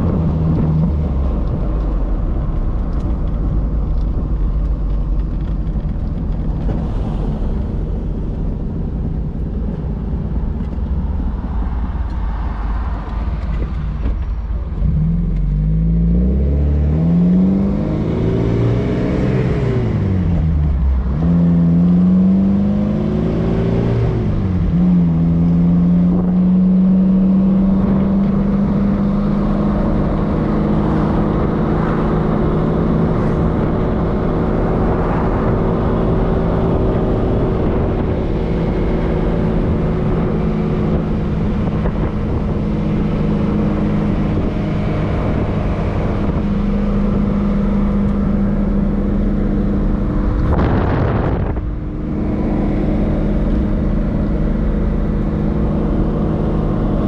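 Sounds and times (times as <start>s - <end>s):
car engine revving: 0.0s - 57.0s
road noise: 0.0s - 57.0s.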